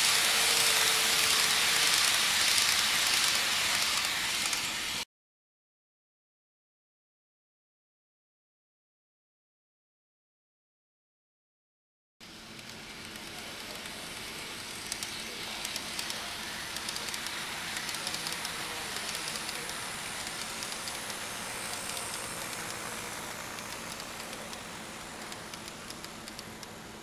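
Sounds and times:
model train whirring: 0:00.0 - 0:05.0, 0:12.2 - 0:27.0
wheels clicking on track: 0:00.0 - 0:05.0, 0:12.2 - 0:27.0.

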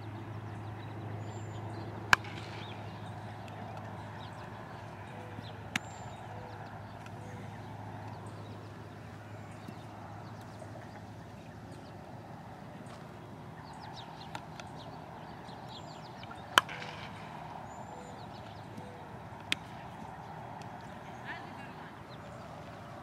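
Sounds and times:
bat hitting ball crack: 0:02.1 - 0:04.5, 0:16.2 - 0:17.6, 0:18.6 - 0:20.8.

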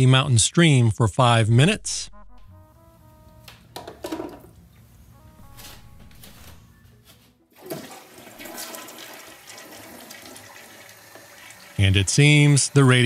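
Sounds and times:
toilet flushing: 0:07.5 - 0:13.0.

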